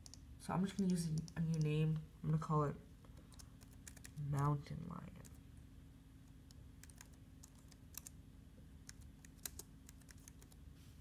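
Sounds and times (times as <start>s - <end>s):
computer keyboard keystrokes: 0.0s - 1.7s, 3.3s - 4.5s, 6.4s - 8.2s, 8.8s - 10.6s.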